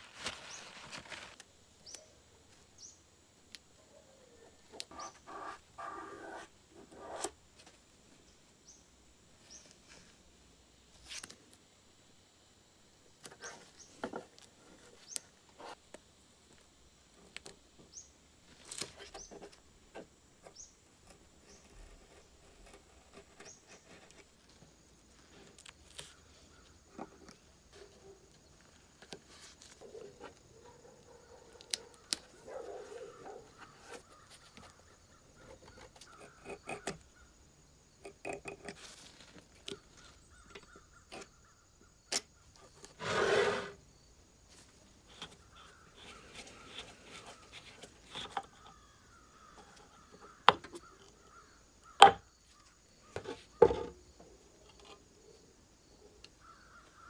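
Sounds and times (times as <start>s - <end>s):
tape crinkling and clicking: 0.0s - 2.0s
light scraping: 42.6s - 43.8s.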